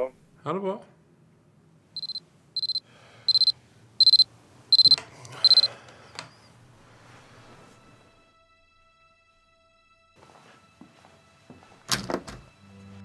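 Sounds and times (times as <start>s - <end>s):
alarm clock beeping: 2.0s - 5.7s.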